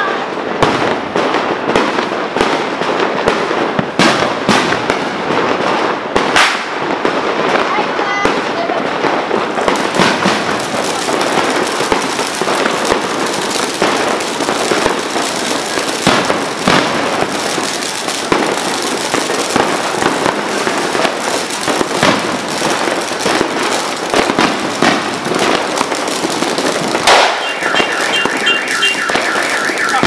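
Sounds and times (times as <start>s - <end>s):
fireworks crackling and popping: 0.0s - 30.0s.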